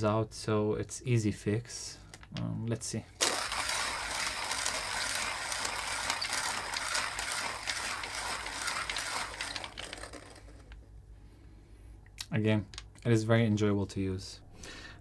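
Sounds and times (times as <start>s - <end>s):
hand coffee grinder crunching beans: 3.2s - 10.8s.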